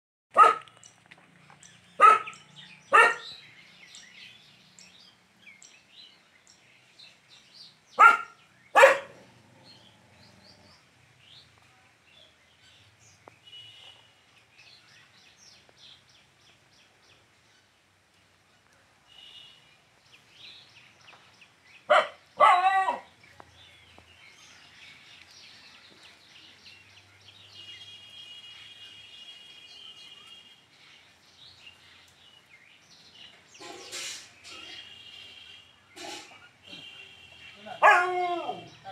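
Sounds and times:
dog barking: 0.3 - 0.7, 2.0 - 3.4, 8.0 - 9.3, 21.9 - 23.1, 37.8 - 38.7
faint bird chirps: 19.0 - 19.8.

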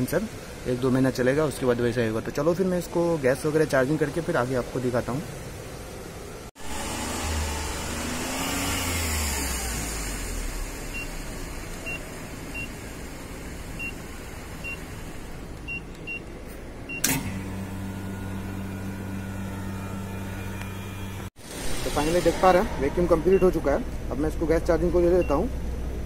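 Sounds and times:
vacuum pump humming: 6.6 - 15.5, 17.0 - 21.3.

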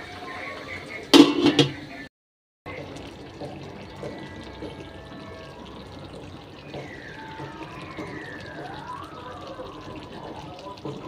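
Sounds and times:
curry bubbling in pot: 2.7 - 11.0.

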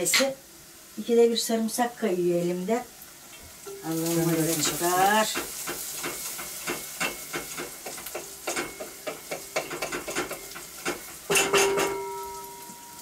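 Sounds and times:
food sizzling in a pan: 0.0 - 13.0
metal clatter ringing: 9.6 - 13.0.

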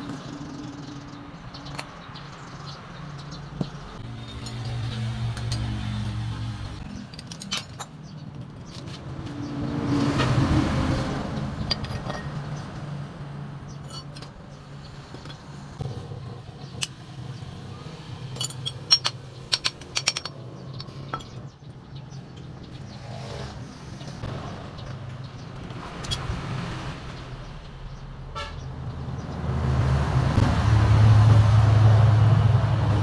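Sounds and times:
low traffic hum: 0.0 - 33.0
metal tools clinking: 4.0 - 6.2, 6.9 - 8.8, 11.7 - 12.4, 13.8 - 14.4, 18.2 - 21.5.

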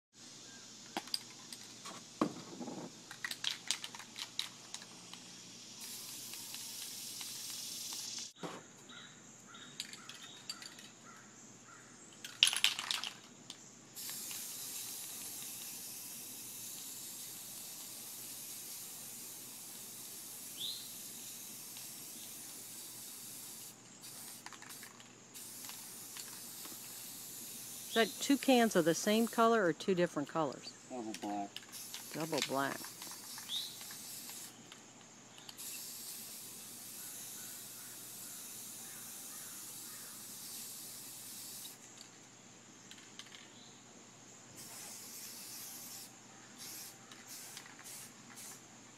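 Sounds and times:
cans clicking and knocking: 2.8 - 5.2, 12.2 - 13.2
spray paint can hissing: 3.0 - 8.4, 14.0 - 29.5, 31.6 - 34.6, 35.3 - 41.9, 44.6 - 48.7.

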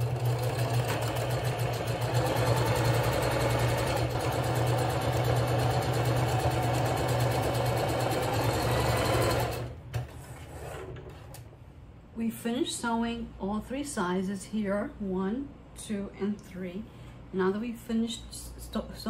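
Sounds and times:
sewing machine stitching: 0.0 - 11.2.

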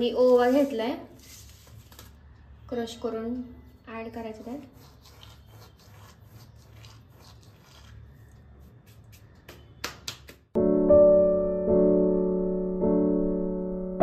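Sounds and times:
palms rubbing seeds: 4.3 - 9.8
piano background music: 10.6 - 14.0.

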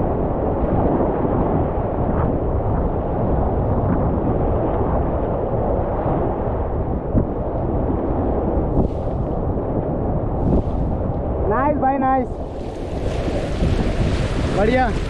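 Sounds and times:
rushing whitewater: 12.3 - 15.0.

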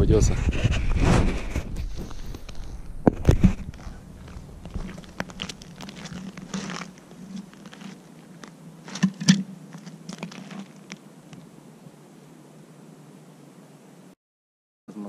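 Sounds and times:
boot footsteps on crackling ice: 1.6 - 11.0
handling sounds: 1.8 - 11.4.

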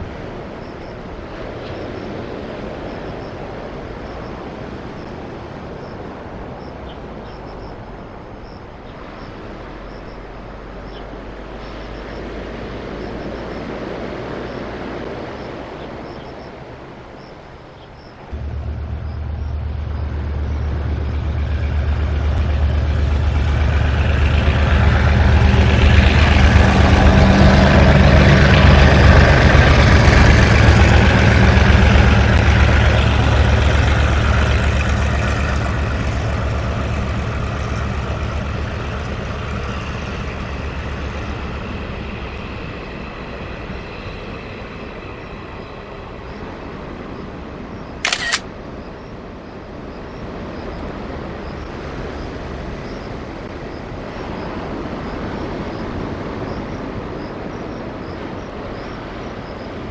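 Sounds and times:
train wheels rumbling on rail: 0.0 - 17.4, 18.0 - 48.4
locomotive engine hum: 0.0 - 59.9.

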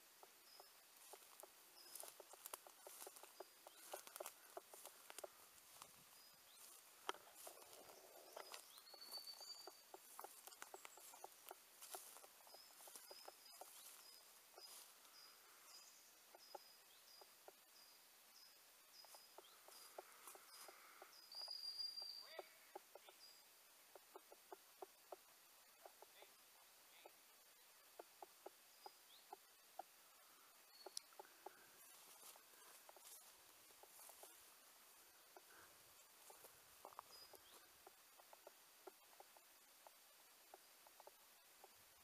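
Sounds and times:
footsteps in dry leaves: 1.0 - 9.4, 10.0 - 15.2.

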